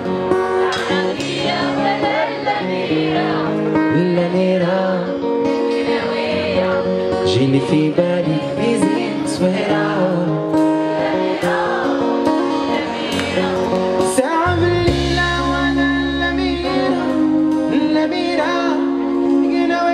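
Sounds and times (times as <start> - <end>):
live band playing: 0.0 - 19.9
man singing into a microphone: 1.7 - 5.8, 6.6 - 19.9
deep heavy bass note: 14.5 - 17.5.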